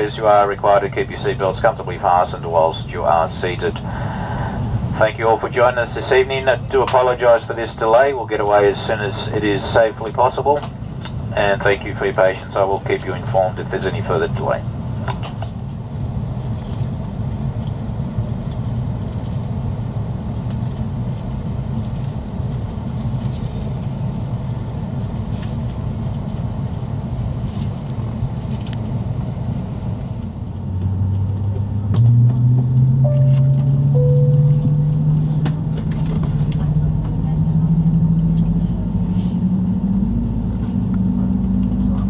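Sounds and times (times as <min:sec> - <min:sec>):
airliner cabin hum: 0:00.0 - 0:42.0
two short higher tones: 0:32.9 - 0:35.7.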